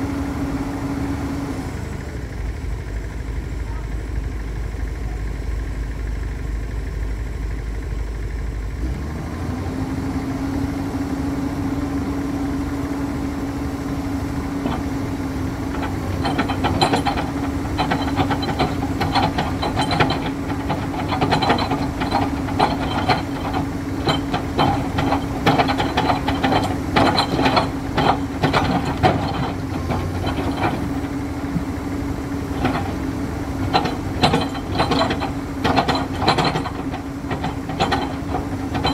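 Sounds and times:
excavator diesel engine humming: 0.0 - 38.9
rapid irregular knocking and rattling: 14.4 - 38.9.

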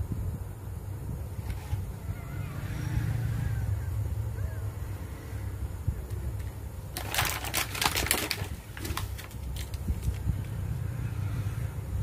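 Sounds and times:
plastic toy vehicles clicking: 6.1 - 10.3.

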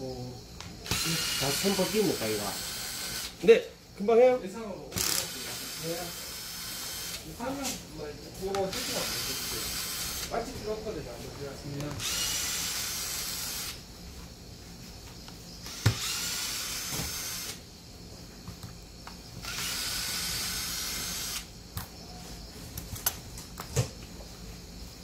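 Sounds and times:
cordless drill whining: 0.8 - 3.4, 4.9 - 7.3, 8.7 - 10.4, 12.0 - 13.8, 15.6 - 17.6, 19.4 - 21.5.

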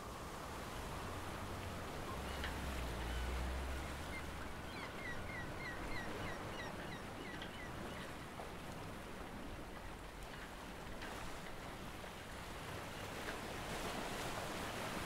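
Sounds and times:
sea waves washing: 0.0 - 7.2.

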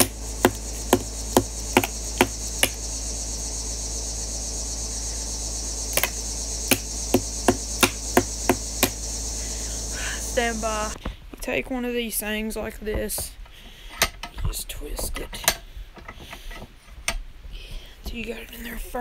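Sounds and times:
insects chorus: 0.0 - 11.1.

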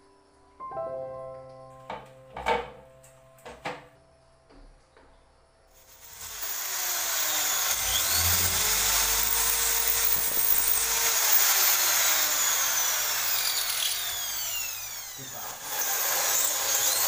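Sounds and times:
electric drill boring into wall: 5.8 - 17.0.

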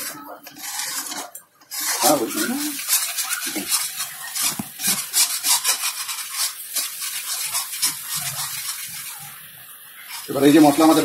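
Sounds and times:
metal spatula scraping pan: 0.0 - 9.4, 10.0 - 11.0.

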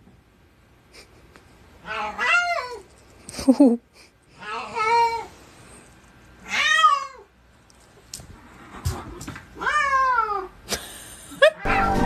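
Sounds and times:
cat meowing: 1.8 - 2.8, 6.4 - 7.3, 9.6 - 10.5.

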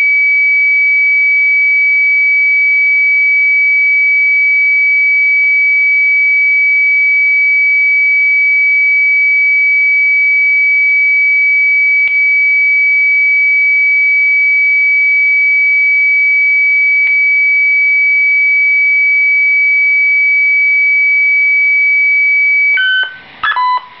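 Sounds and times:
steady high-pitched radio tone: 19.4 - 24.0
short beeps at changing pitches: 22.5 - 24.0.

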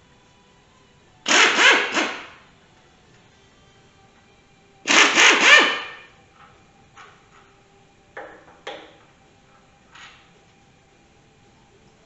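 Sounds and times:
air impact wrench hammering: 1.3 - 2.4, 4.9 - 6.1.

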